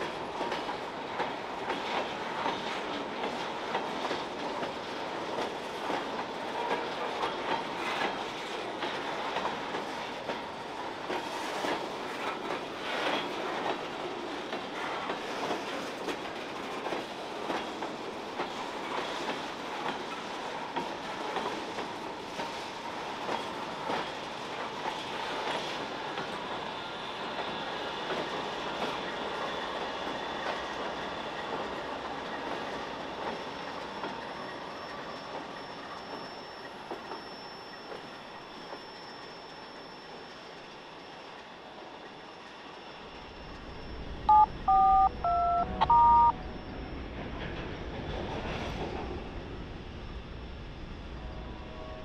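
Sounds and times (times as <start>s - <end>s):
freight train creaking and clattering: 0.0s - 40.6s, 41.3s - 52.0s
two-tone keypad beeps: 44.3s - 46.4s.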